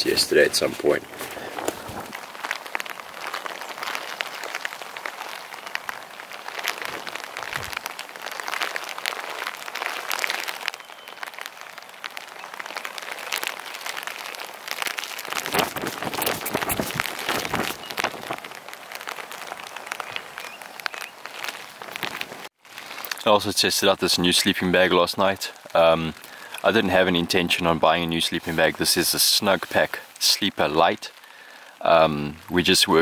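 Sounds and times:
drizzle pattering: 0.0s - 23.3s
wind noise on microphone: 6.9s - 7.8s, 15.3s - 18.5s.

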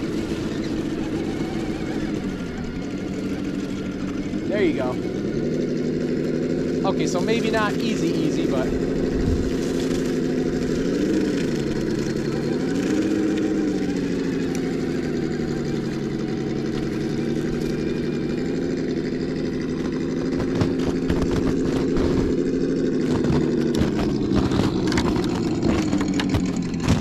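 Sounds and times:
simulated engine drone from speaker: 0.0s - 27.0s
toy truck clicks and knocks: 23.0s - 27.0s.

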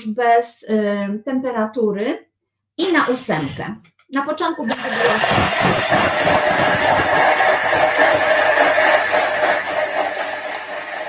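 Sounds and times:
kitchen machine grinding coffee beans: 4.7s - 11.0s.

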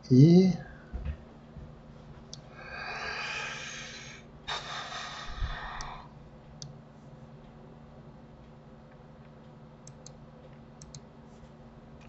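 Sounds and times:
person breathing heavily: 2.5s - 6.2s
faint clicks: 10.8s - 11.0s.

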